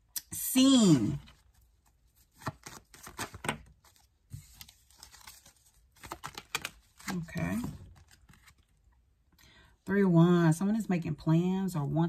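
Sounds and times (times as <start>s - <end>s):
cards clicking and rustling: 2.2s - 8.7s.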